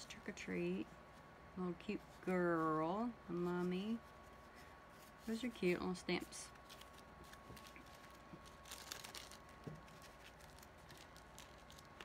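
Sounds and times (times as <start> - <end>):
plastic sheet crinkling: 5.0 - 12.0.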